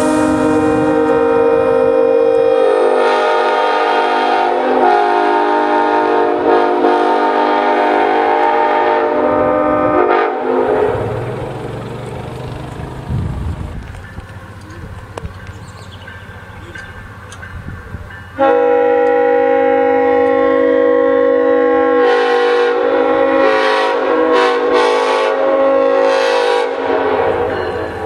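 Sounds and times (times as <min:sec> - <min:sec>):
locomotive air horn chord: 0:00.0 - 0:11.5, 0:18.4 - 0:28.0.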